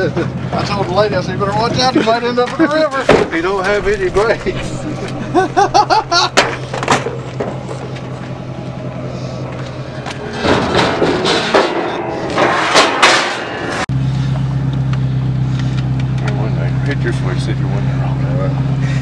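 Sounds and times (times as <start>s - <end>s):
voices: 0.0s - 10.5s, 16.1s - 19.0s
engine hum: 0.0s - 19.0s
vehicle low drone: 0.0s - 19.0s
rough swells of noise: 3.3s - 11.3s.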